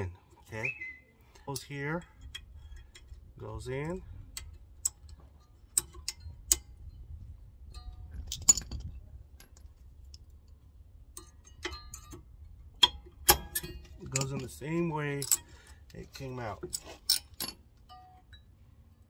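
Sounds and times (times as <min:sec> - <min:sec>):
sharp metallic clicks and clinks: 0:03.8 - 0:07.0, 0:11.1 - 0:18.5.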